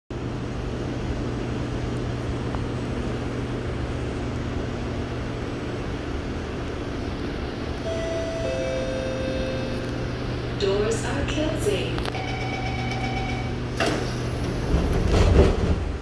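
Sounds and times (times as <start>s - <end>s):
electric train hum and hiss: 0.1s - 16.0s
electronic chime: 7.9s - 10.1s.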